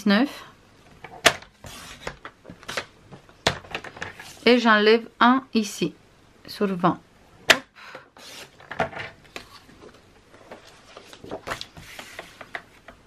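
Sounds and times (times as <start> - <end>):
paper scraping: 1.6 - 2.9, 8.2 - 8.6, 10.4 - 12.7.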